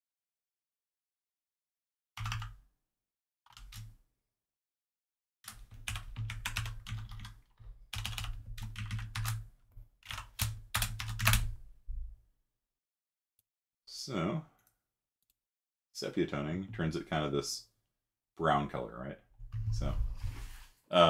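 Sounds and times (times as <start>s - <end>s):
typing on keyboard: 2.2s - 2.6s, 3.5s - 3.9s, 5.5s - 11.6s.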